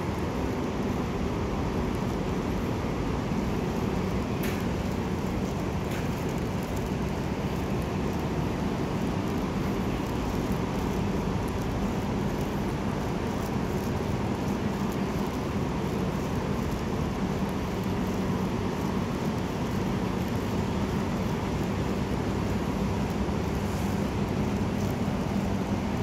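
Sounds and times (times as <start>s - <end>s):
faint ticks: 0.0s - 26.0s
low rumble with faint hum: 0.0s - 26.0s.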